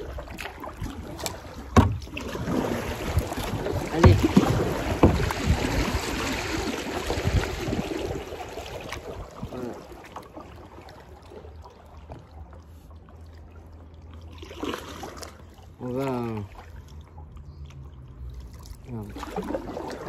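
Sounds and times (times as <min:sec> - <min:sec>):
paddle blades splashing water: 0:00.0 - 0:20.0
water trickling: 0:00.0 - 0:20.0
paddle thumps: 0:01.2 - 0:06.3.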